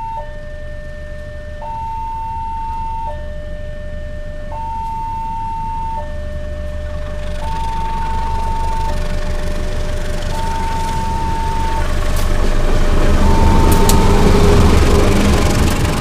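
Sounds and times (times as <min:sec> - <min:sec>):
low rumble: 0:00.0 - 0:16.0
two-tone crossing alarm: 0:00.0 - 0:16.0.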